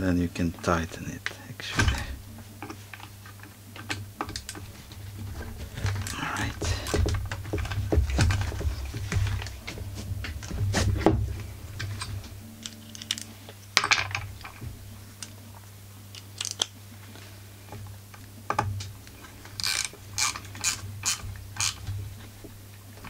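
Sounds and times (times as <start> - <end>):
tools knocking and clattering: 5.4 - 12.2
rapid ratchet clicks: 19.6 - 21.9.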